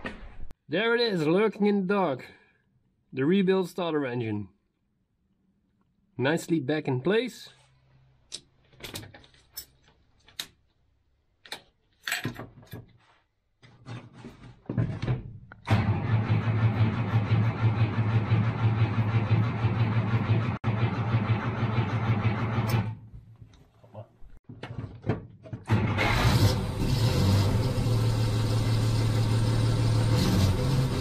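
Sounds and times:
starter cranking engine: 0:15.7 - 0:22.9, 0:25.7 - 0:31.0.

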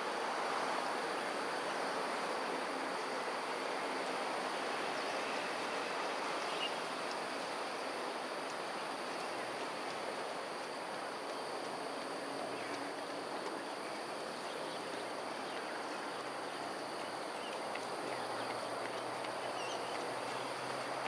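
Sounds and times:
outdoor background rush: 0:00.0 - 0:21.0.

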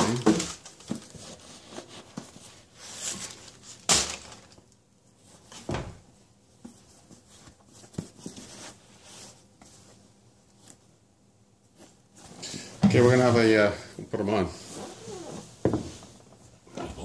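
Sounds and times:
slippers rustling: 0:14.5 - 0:17.0.

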